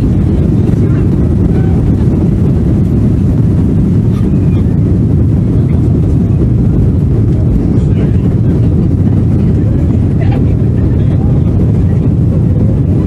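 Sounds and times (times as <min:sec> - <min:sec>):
jet engines and wheels rumbling: 0:00.0 - 0:13.0.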